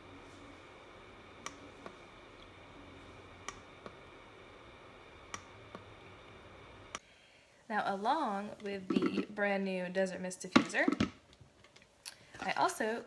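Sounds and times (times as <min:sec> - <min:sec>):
faint hiss: 0:00.0 - 0:10.2.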